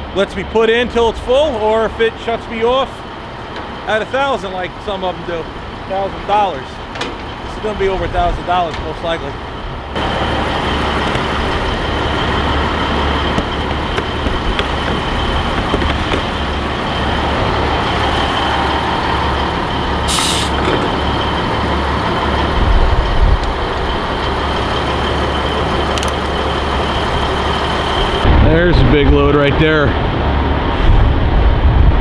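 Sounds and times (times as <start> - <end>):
diesel trucks rumbling: 0.0 - 32.0
air hiss: 20.1 - 20.6.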